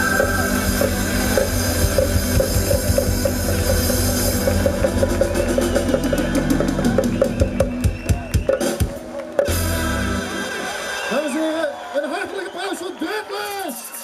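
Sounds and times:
drum kit beat: 0.0 - 10.6
live band playing: 0.0 - 11.6.

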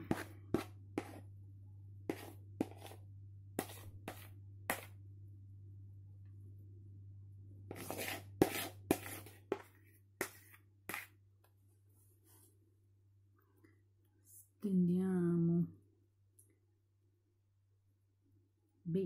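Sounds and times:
spatula scraping bowl: 0.0 - 1.2, 2.1 - 3.0, 3.6 - 4.9, 7.7 - 11.1.

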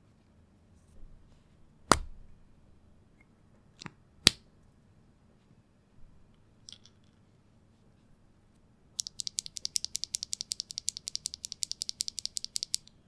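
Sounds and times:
small plastic parts clicking: 9.0 - 13.0.

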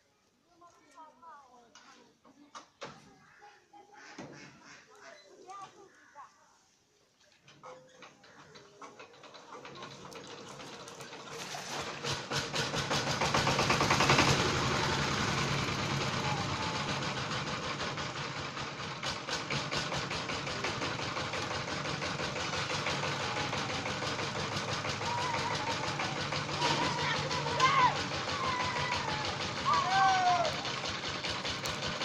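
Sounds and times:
small engine knocking: 7.4 - 32.0.

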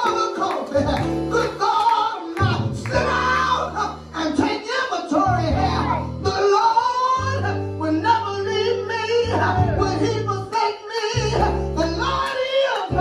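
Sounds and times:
voices singing: 0.0 - 7.6
electronic keyboard chords: 0.0 - 13.0.

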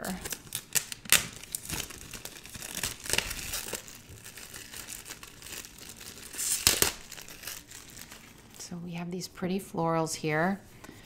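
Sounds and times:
plastic wrap crinkling: 0.0 - 8.7.

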